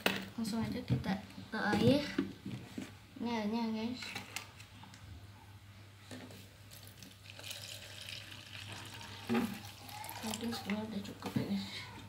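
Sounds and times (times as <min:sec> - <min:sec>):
water pouring into plastic bowl: 0:06.7 - 0:10.9.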